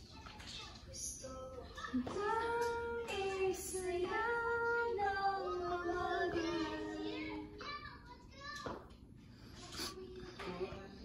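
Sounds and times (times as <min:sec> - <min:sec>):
child singing a slow tune: 0:01.0 - 0:08.0.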